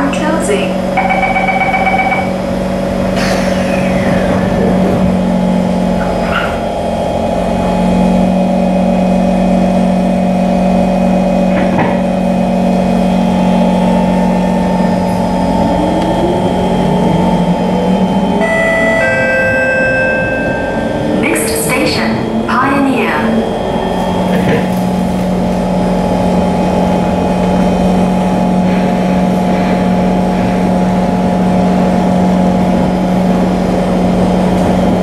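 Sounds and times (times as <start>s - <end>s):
train doors shutting: 0.0s - 8.4s, 11.4s - 35.0s
train electrical hum: 0.0s - 35.0s
traction motor whine: 0.8s - 35.0s
door warning tone: 0.9s - 2.6s, 14.9s - 24.7s.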